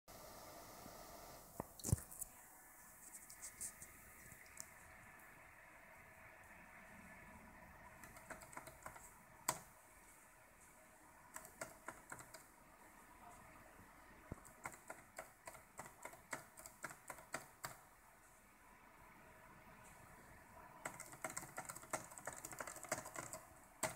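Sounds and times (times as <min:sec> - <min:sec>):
laptop keys clicking: 0:08.0 - 0:09.7, 0:11.3 - 0:12.5, 0:14.3 - 0:17.8, 0:20.8 - 0:23.9.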